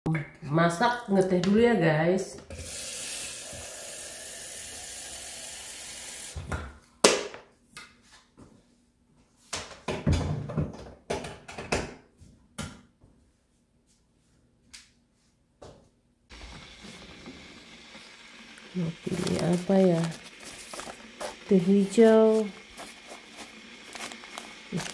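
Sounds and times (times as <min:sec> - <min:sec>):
steady hiss: 0:16.3 - 0:24.9.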